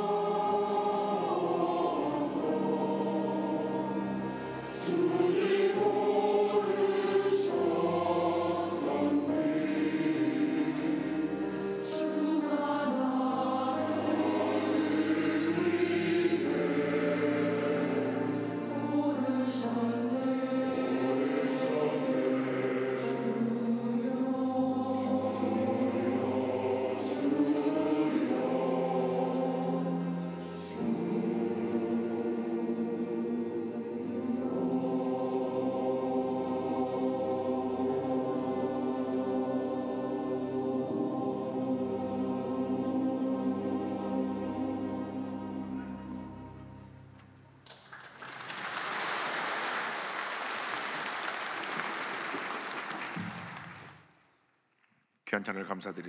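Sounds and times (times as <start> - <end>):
choir singing a hymn: 0.0 - 47.1
congregation applauding: 47.6 - 54.2.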